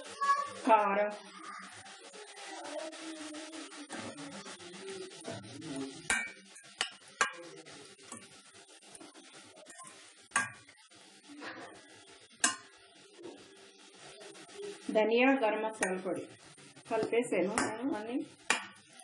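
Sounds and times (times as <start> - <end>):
spoon scraping in a pan: 1.5 - 19.0
metal spoon clinking on pan: 6.1 - 7.5, 12.4 - 12.8.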